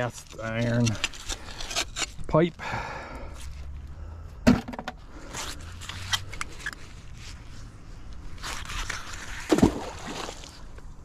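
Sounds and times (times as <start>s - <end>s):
scraping and crunching on metal pipe: 0.0s - 2.5s.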